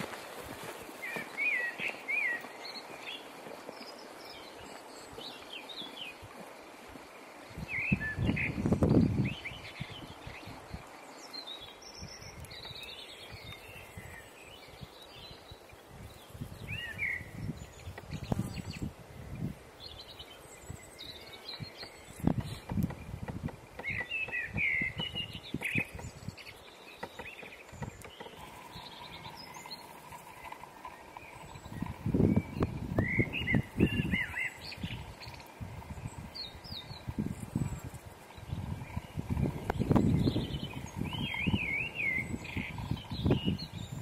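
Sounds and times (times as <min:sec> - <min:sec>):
footsteps on dirt trail: 0:00.0 - 0:07.1
small birds chirping: 0:00.0 - 0:44.0.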